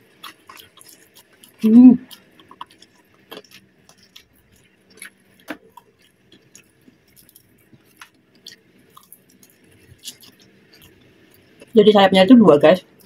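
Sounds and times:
crackles from chewing crispy chicken: 0:00.0 - 0:11.8.

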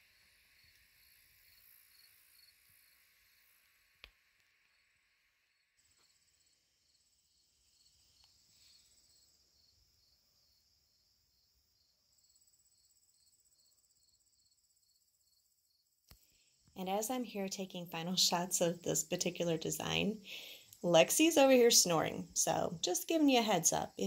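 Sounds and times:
high-pitched pulsing hiss: 0:16.2 - 0:24.0.

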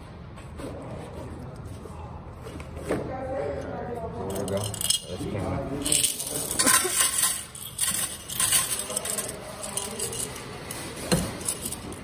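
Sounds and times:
coins clattering onto metal tray: 0:05.8 - 0:10.4.

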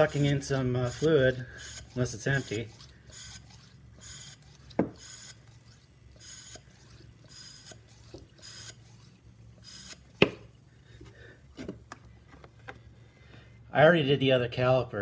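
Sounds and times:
syringe pump hissing air: 0:00.0 - 0:11.9
sharp plastic knocks: 0:04.8 - 0:05.0, 0:10.2 - 0:10.5.

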